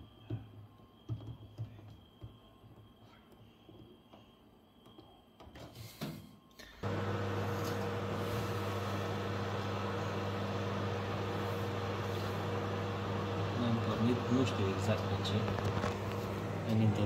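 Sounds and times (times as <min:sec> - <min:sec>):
microwave oven humming: 0:06.7 - 0:17.0.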